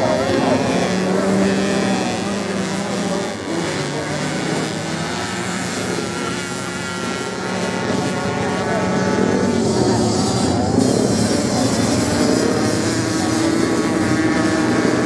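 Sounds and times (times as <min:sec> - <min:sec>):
racing motorcycle engines: 0:00.0 - 0:15.0.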